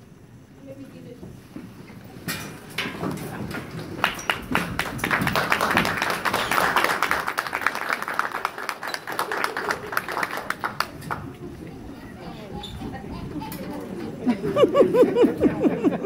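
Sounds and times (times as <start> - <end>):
audience applauding: 3.7 - 11.5.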